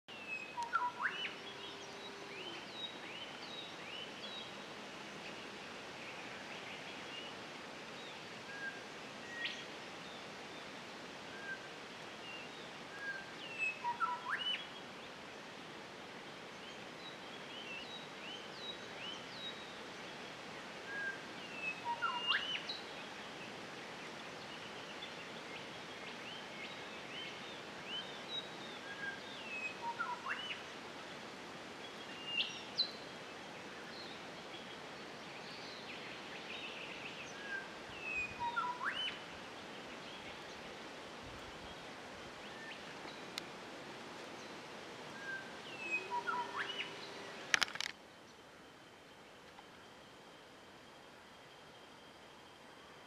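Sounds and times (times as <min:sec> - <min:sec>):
faint steady hiss: 0:00.1 - 0:53.0
birds chirping and whistling: 0:38.1 - 0:39.2, 0:45.2 - 0:47.2
sharp upward-sweeping bird calls: 0:45.2 - 0:47.2.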